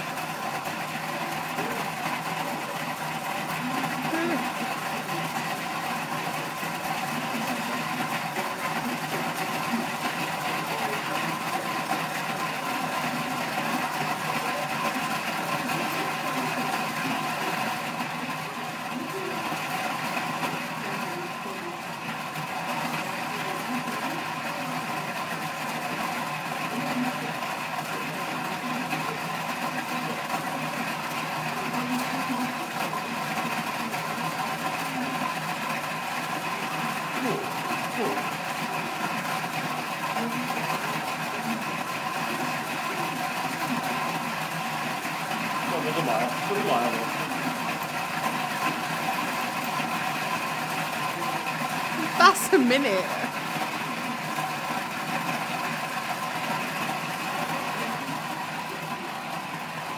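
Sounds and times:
people talking: 1.1 - 2.8, 3.5 - 5.4, 7.1 - 11.8, 12.4 - 19.6, 20.7 - 22.0, 22.7 - 25.0, 26.7 - 30.8, 31.6 - 33.2, 40.2 - 40.6, 45.7 - 47.6, 52.0 - 53.3.

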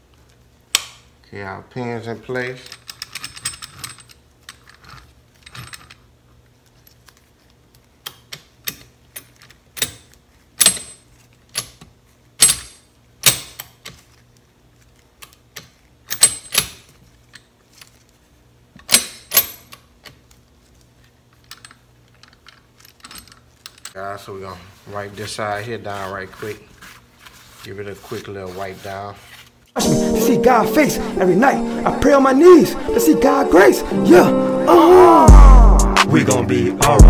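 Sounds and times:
metal parts clicking and clinking: 2.6 - 6.0, 16.1 - 17.5, 21.3 - 24.0.

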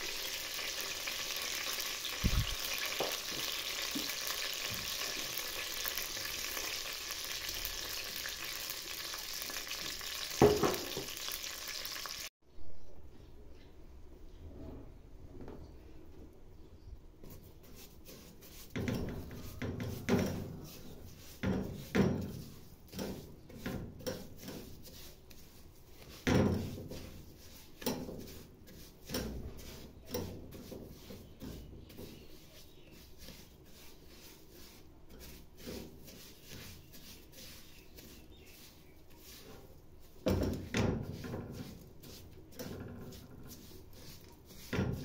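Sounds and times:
spatula scraping metal pot: 17.2 - 45.0.

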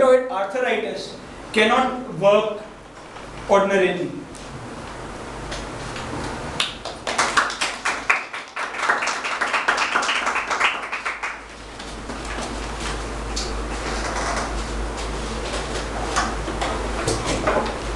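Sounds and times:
people clapping: 6.6 - 11.5.

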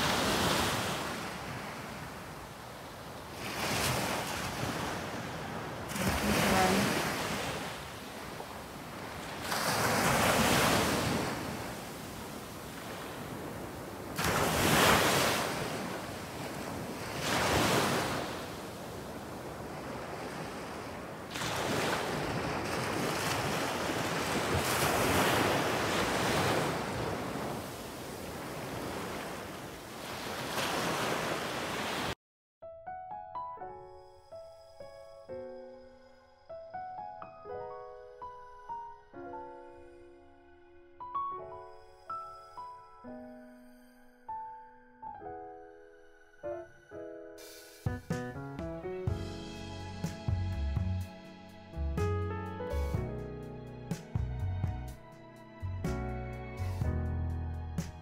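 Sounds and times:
sea waves breaking on shore: 0.0 - 32.2.

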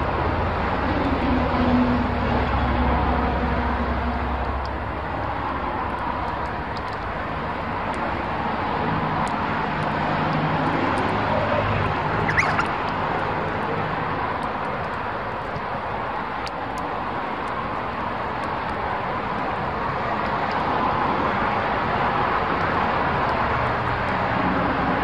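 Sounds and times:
road traffic rushing: 0.0 - 25.0
rising bird chirp: 12.2 - 12.8.

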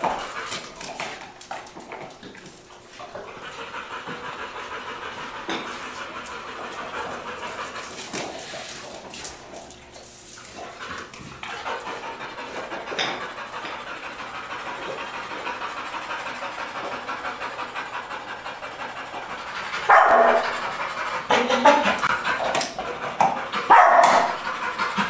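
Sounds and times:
dog panting: 0.0 - 25.0
dog barking loudly: 19.9 - 20.6, 23.6 - 24.4.

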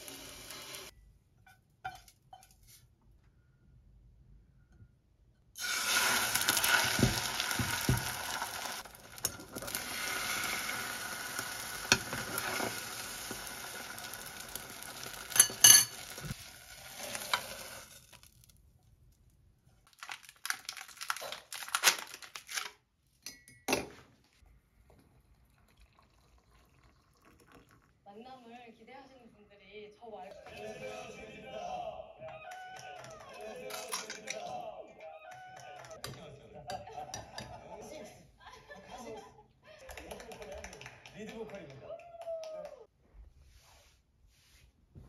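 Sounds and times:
egg sizzling in hot oil: 0.0 - 0.9, 5.6 - 18.6
chopsticks tapping a pan: 6.6 - 9.8.

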